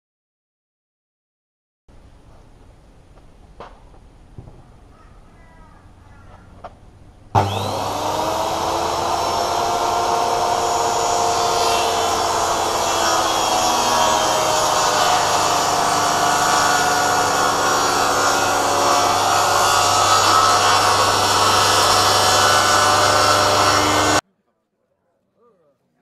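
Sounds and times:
circular saw cutting plywood: 7.4s - 24.2s.

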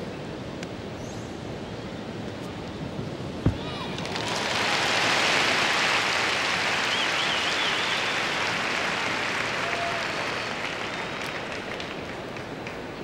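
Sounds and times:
arena crowd applauding: 3.8s - 13.0s.

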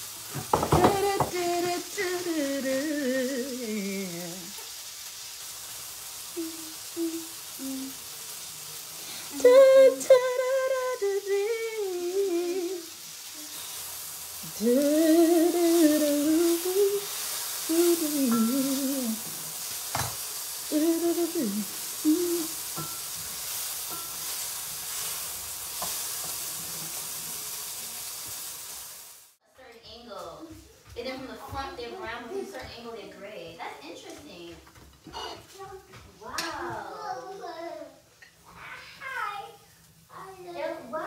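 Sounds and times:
faint steady hiss: 0.0s - 41.0s
woman humming: 0.6s - 4.6s, 6.3s - 8.1s, 9.3s - 12.9s, 14.4s - 19.4s, 20.7s - 22.6s.

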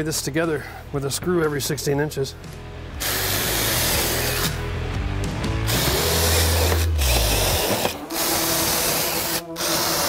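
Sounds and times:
drill driving a screw: 3.0s - 4.6s, 5.6s - 10.0s.

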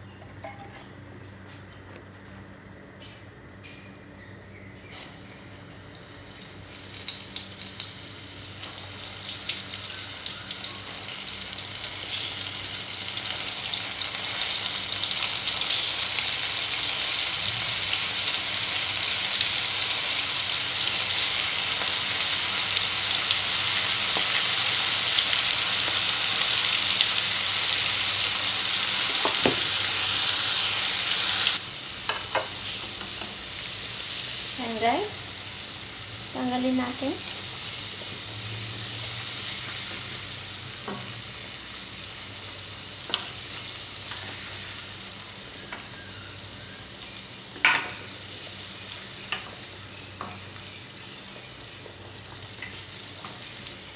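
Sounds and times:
shrimp sizzling in hot oil: 6.2s - 53.9s.

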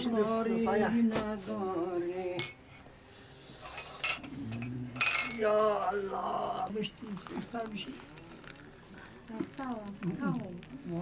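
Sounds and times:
dishes and cutlery clinking: 3.7s - 5.5s.

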